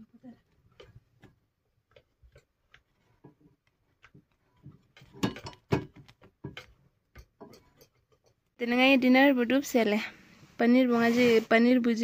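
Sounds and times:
metal spatula tapping on pan: 4.6s - 8.4s.

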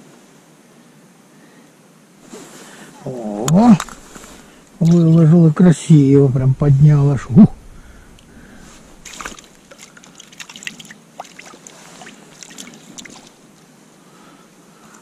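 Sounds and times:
water dribbling: 3.5s - 5.3s, 7.5s - 13.5s.

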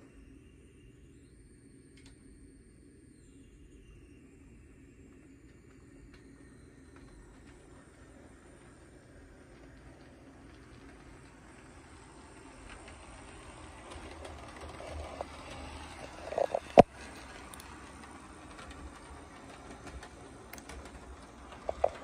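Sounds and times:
wheels clicking over rails: 6.1s - 22.0s
model train motor hum: 6.2s - 22.0s.

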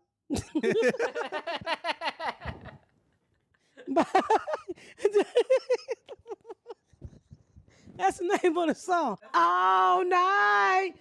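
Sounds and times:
woman laughing: 0.3s - 2.9s, 3.8s - 7.5s.

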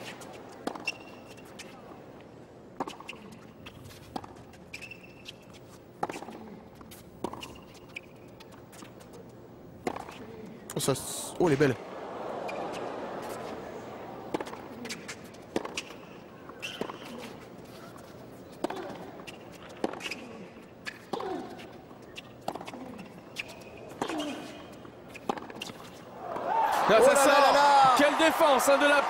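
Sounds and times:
low crowd hum: 0.0s - 29.0s
racket hitting tennis ball: 7.2s - 8.1s, 9.8s - 10.3s, 12.5s - 21.7s, 22.4s - 26.8s.

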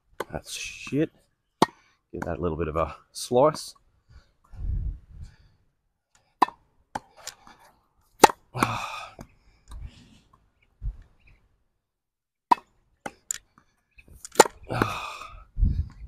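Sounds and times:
racket hitting tennis ball: 6.4s - 7.4s, 8.2s - 9.3s.

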